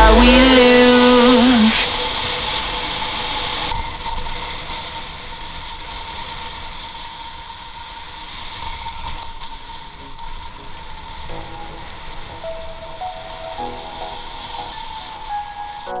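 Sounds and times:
music track: 0.0s - 3.6s, 10.0s - 16.0s.

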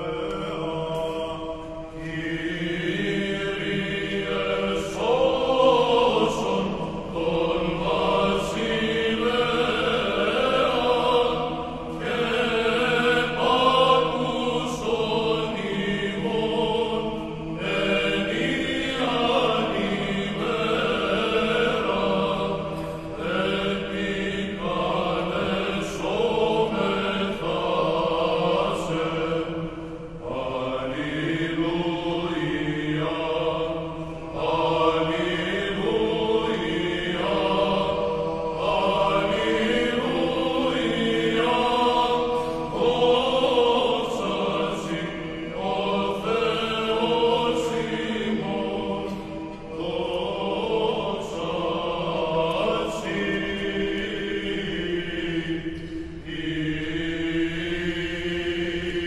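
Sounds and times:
choir singing a chant: 0.0s - 59.0s
singers breathing: 22.6s - 23.2s, 42.3s - 42.7s.

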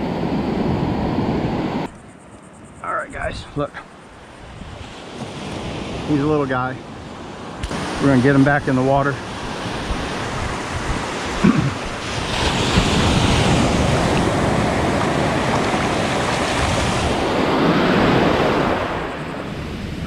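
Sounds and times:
surf washing up on sand: 4.8s - 20.0s.

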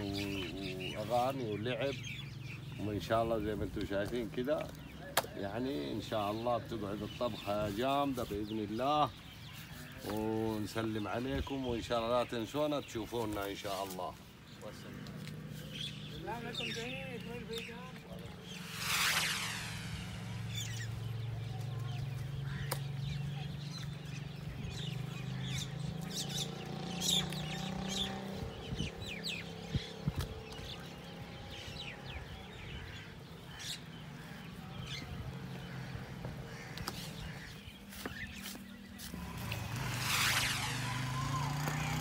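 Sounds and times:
birds chirping and clucking: 0.0s - 42.0s
steady low hum: 18.3s - 22.7s.

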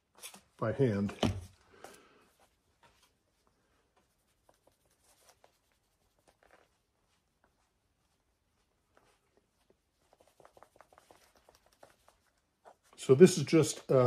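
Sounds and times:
soft ticks and rubs: 2.3s - 14.0s.

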